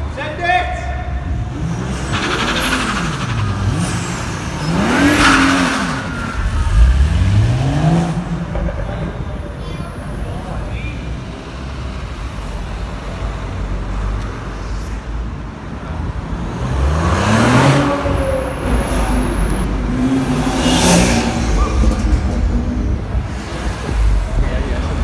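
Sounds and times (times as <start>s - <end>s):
cars accelerating past: 1.2s - 9.4s, 16.0s - 25.0s.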